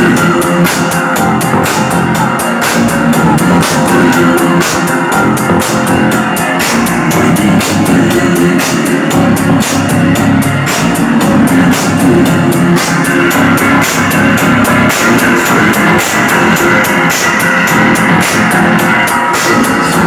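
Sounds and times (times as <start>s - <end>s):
live band with guitar and drums: 0.0s - 20.0s.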